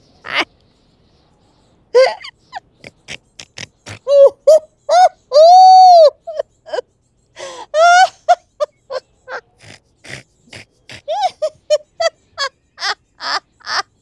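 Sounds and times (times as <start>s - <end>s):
person laughing stifled: 2.0s - 6.8s, 7.7s - 14.0s.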